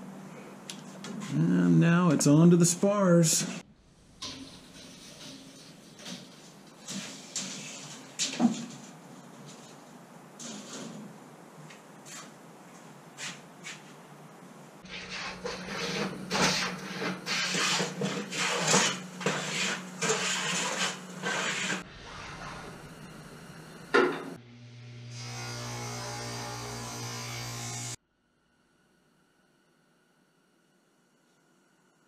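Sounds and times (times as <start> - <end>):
steady electrical hum: 0.0 - 32.0
hand tool scraping wood: 14.8 - 22.5.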